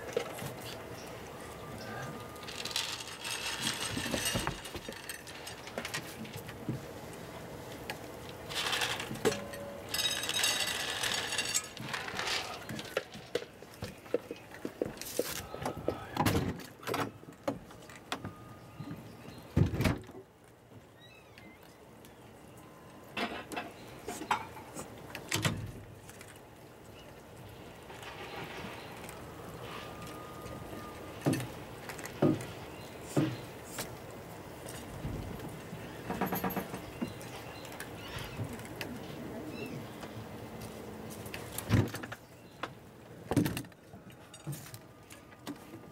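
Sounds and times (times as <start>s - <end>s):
cats crunching kibble: 9.9s - 16.8s, 25.8s - 35.7s, 37.1s - 41.6s.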